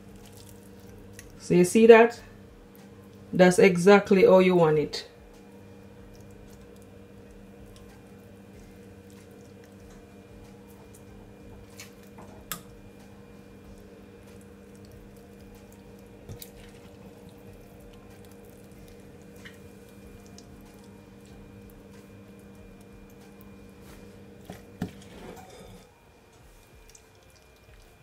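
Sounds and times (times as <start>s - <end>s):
wet squishes of raw fish: 0.0s - 1.4s, 6.0s - 10.1s, 13.7s - 24.1s, 26.5s - 28.0s
low background hum: 0.0s - 28.0s.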